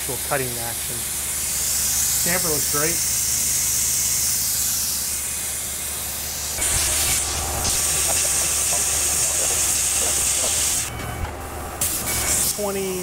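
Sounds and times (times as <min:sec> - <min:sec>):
coolant nozzle hissing: 0:00.1 - 0:10.9
machine low hum: 0:05.1 - 0:13.0.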